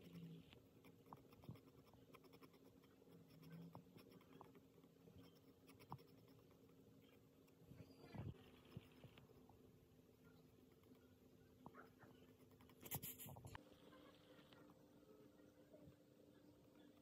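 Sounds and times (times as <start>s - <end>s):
pencil scratching on paper: 0.8s - 4.5s, 5.2s - 6.6s, 11.8s - 13.6s.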